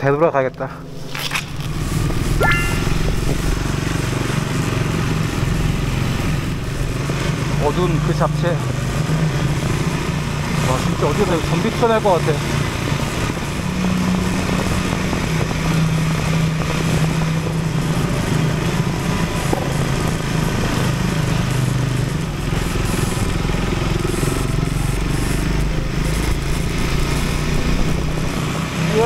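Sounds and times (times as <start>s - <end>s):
motorcycle engine running: 0.8s - 29.0s.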